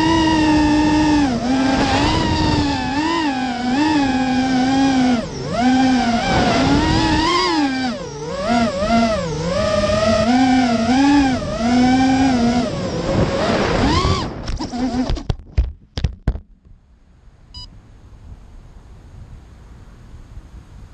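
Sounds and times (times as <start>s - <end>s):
drone motors whining: 0.0s - 15.3s
short beep: 17.5s - 17.7s.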